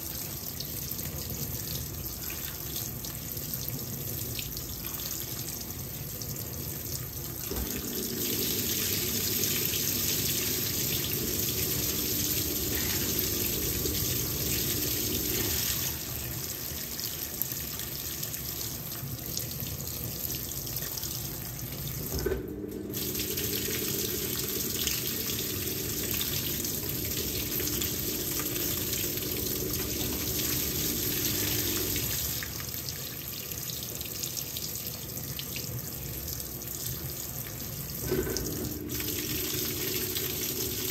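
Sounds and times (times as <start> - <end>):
low machine hum: 0.0 - 17.4, 21.0 - 32.7, 37.8 - 40.9
water rushing into washing machine: 0.0 - 34.5, 35.4 - 40.9.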